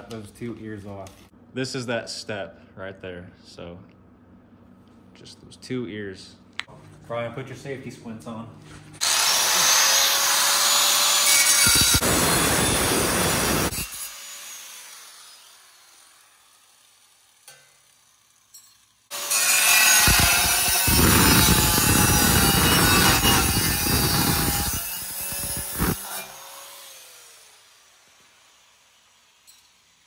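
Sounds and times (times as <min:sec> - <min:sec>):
angle grinder cutting metal: 0:09.0 - 0:30.0.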